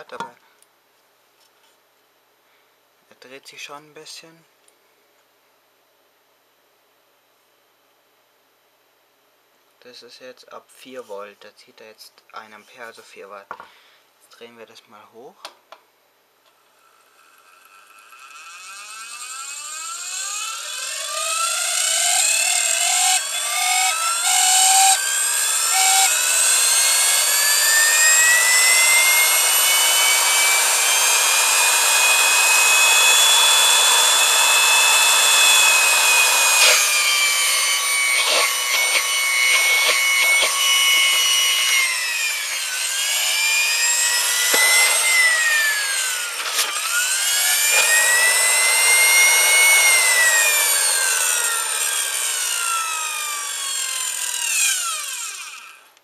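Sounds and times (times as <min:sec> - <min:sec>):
vacuum cleaner motor whine: 0:17.1 - 0:55.8
motor clicking: 0:17.9 - 0:56.0.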